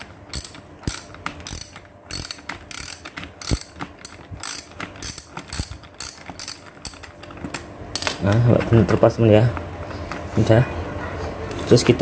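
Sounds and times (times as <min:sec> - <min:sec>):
ratchet wrench clicking: 0:00.3 - 0:07.1.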